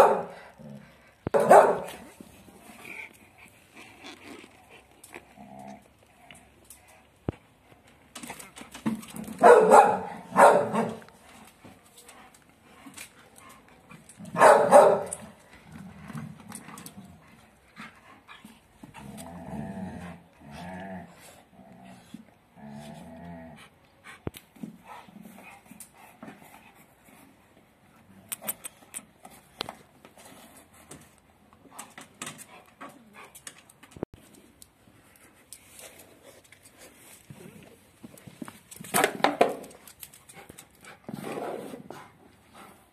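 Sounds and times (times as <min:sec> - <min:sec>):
dog barking: 0:00.0 - 0:00.4, 0:01.4 - 0:01.9, 0:09.4 - 0:11.0, 0:14.4 - 0:15.2
dog growling low: 0:00.4 - 0:01.1, 0:03.8 - 0:06.2, 0:18.9 - 0:23.8.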